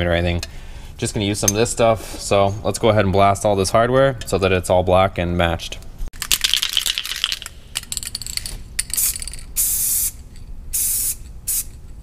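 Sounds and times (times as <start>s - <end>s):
spray can ball rattling: 6.2s - 11.8s
spray paint hissing: 8.9s - 11.8s.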